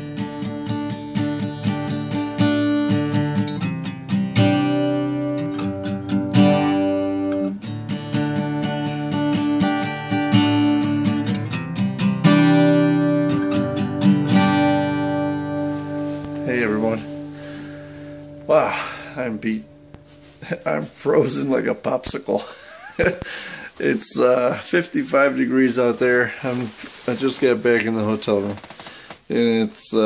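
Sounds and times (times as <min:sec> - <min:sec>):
acoustic guitar strumming chords: 0:00.0 - 0:22.3.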